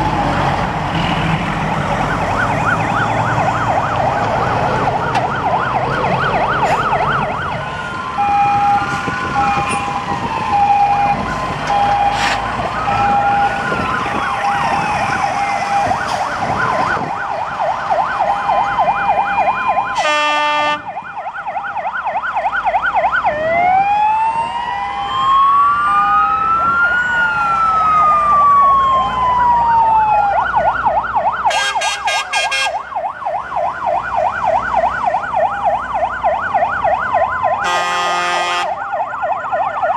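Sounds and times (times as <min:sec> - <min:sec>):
fire engine sirens: 0:00.0 - 0:39.9
fire truck horn blasts: 0:19.9 - 0:20.9, 0:31.5 - 0:32.8, 0:37.6 - 0:38.8.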